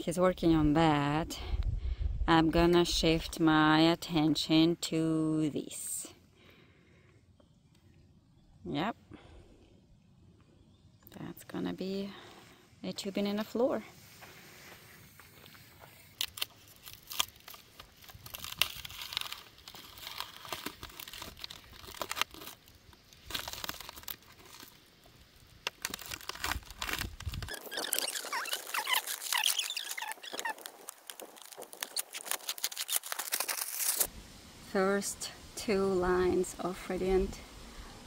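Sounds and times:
plastic wrap crinkling and tearing: 15.5s - 34.1s.

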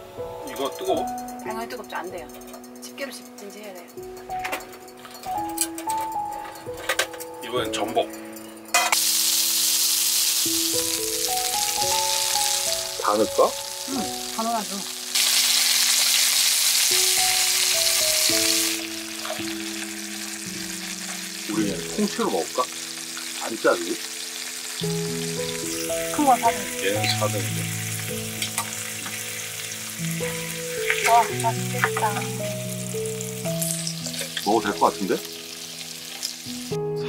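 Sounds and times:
abalone sizzling in butter: 8.7s - 36.8s.

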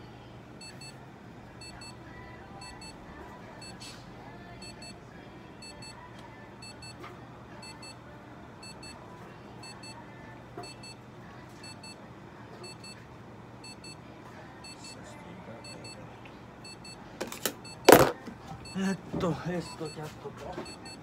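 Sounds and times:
steady low hum: 0.0s - 20.0s
electronic alarm beeping: 0.6s - 1.0s, 2.6s - 3.0s, 4.6s - 5.0s, 7.6s - 8.0s, 8.6s - 9.0s, 9.6s - 10.0s, 10.6s - 11.0s, 11.6s - 12.0s, 12.6s - 13.0s, 13.6s - 14.0s, 16.6s - 17.0s, 19.6s - 20.0s, 20.6s - 21.0s.

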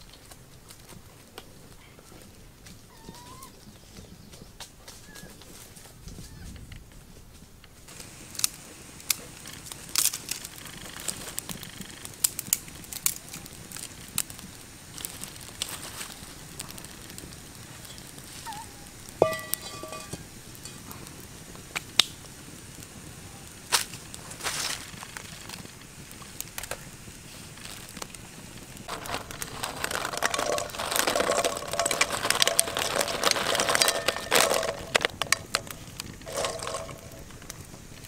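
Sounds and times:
eggshells clicking together: 28.8s - 37.6s.

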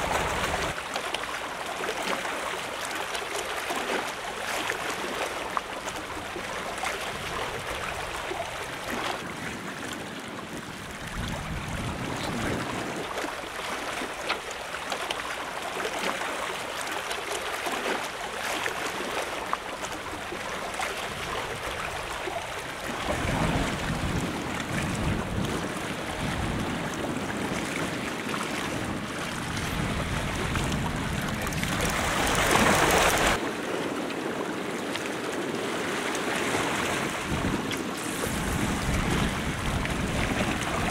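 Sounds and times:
wind buffeting microphone: 0.0s - 0.8s, 5.9s - 14.2s, 19.9s - 40.9s
waves washing against a seawall: 0.0s - 40.9s.

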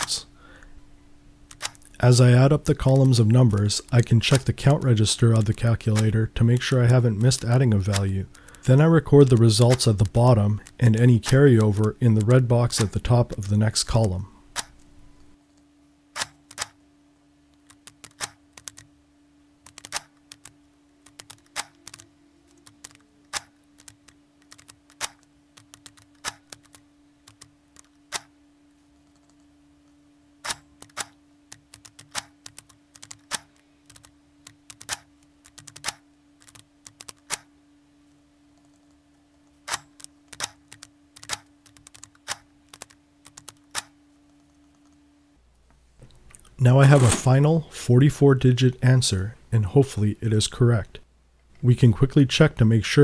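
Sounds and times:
steady low hum: 0.0s - 53.0s
mechanical calculator clicking: 19.6s - 28.3s, 30.4s - 37.5s, 39.7s - 43.9s.

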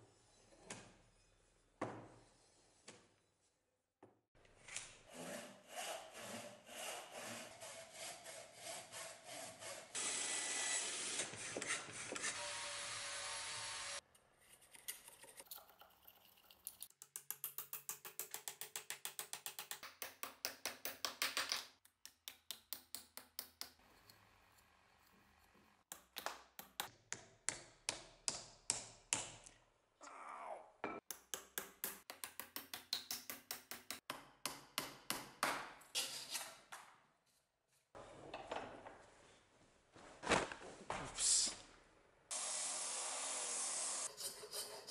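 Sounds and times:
hand saw cutting wood: 4.7s - 14.0s, 43.3s - 44.9s.

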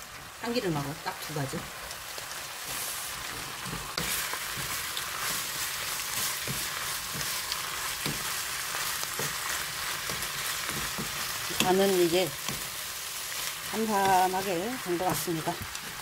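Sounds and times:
food sizzling in oil: 0.0s - 16.0s
spatula knocking and scraping pan: 3.3s - 12.8s.

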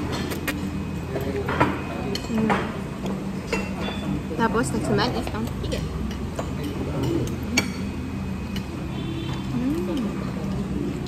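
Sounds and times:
low hum of dining room: 0.0s - 11.0s
dishes and cutlery clinking: 1.2s - 4.4s, 5.2s - 10.1s.

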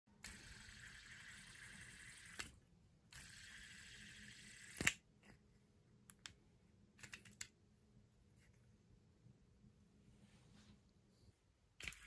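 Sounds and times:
fidget spinner bearing whirring: 0.2s - 5.0s, 11.8s - 12.0s.

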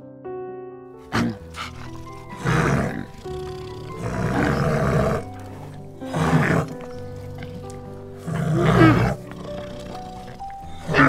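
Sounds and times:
background music: 0.0s - 11.0s
bear growling: 1.0s - 11.0s.

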